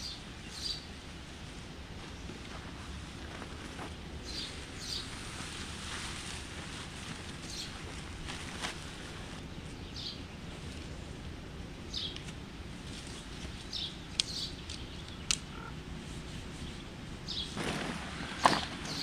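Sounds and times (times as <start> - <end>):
low background noise: 0.0 - 19.0
small bird chirping: 13.6 - 15.8
sharp clicks: 14.1 - 15.6.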